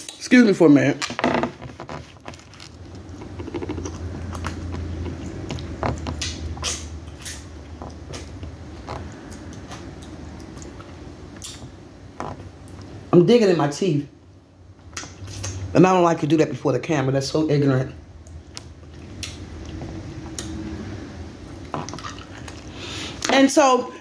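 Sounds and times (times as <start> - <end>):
mouth clicks and smacks: 2.9 - 12.9, 14.9 - 15.7, 18.2 - 20.6, 21.4 - 23.3
low rumble: 18.0 - 21.6.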